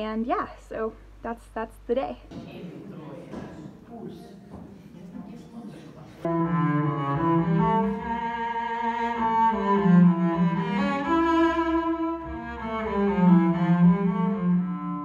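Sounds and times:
bowed cello melody: 6.2 - 15.0.

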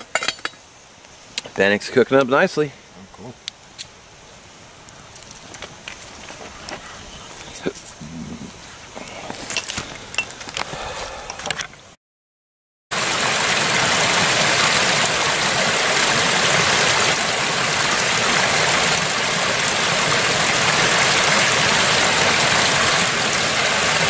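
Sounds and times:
stream splashing over cascade: 12.9 - 24.0.

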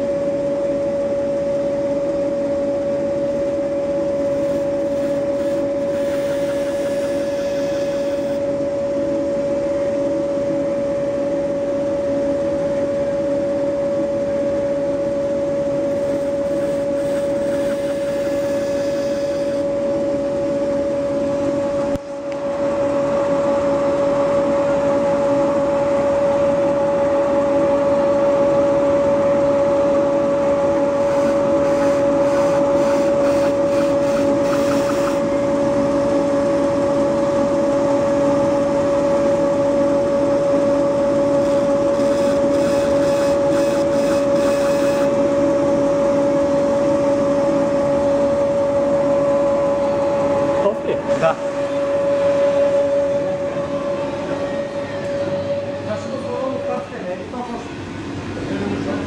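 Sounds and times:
grinding wheel motor hum: 1.6 - 9.4, 14.5 - 23.6, 29.4 - 54.4
knife rasping on grinding wheel: 4.2 - 8.4, 15.9 - 19.6, 31.0 - 35.3, 41.4 - 45.2.

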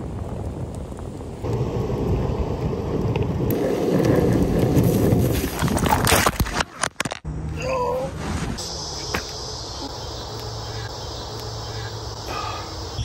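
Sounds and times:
wind buffeting the microphone: 0.0 - 6.1
skateboard wheels rolling on pavement: 0.0 - 6.8.

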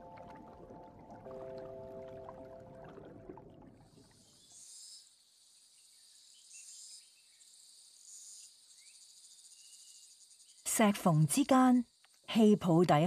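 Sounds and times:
background music: 0.0 - 3.7
high-pitched insect trill: 4.5 - 12.8.

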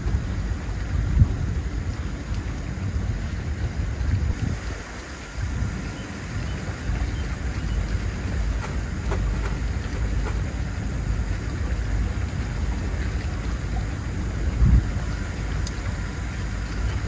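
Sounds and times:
wind buffeting microphone: 0.0 - 17.0
faint clicks: 15.6 - 15.8.

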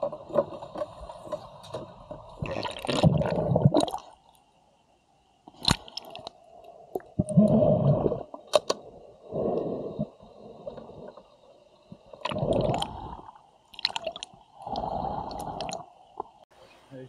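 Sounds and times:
pool water sloshing and gurgling: 0.0 - 4.1.

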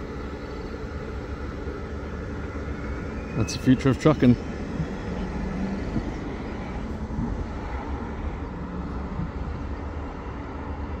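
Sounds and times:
truck tyre road noise: 0.0 - 11.0
wind rumble on microphone: 4.4 - 11.0.

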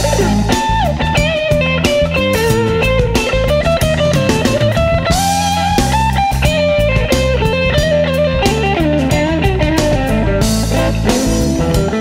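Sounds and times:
bass and drums: 0.0 - 12.0
electric guitar solo: 0.0 - 12.0.

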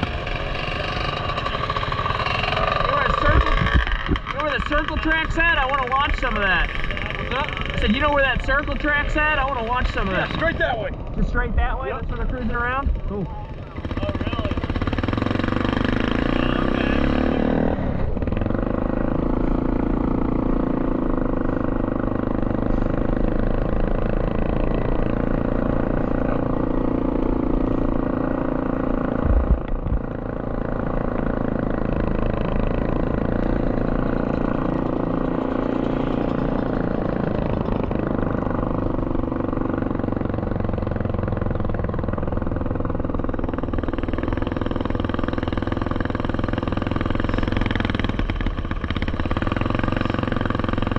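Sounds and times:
atv engine running: 0.0 - 50.9
low thump: 29.2 - 30.1.

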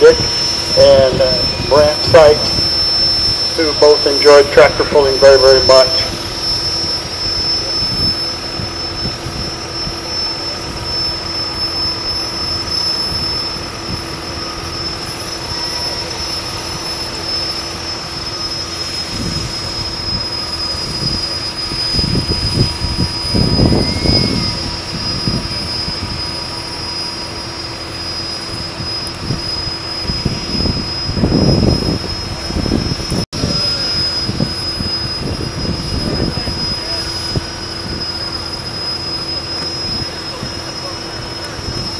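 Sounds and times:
tractor engine idling: 0.0 - 7.2
high constant whine: 0.0 - 41.9.

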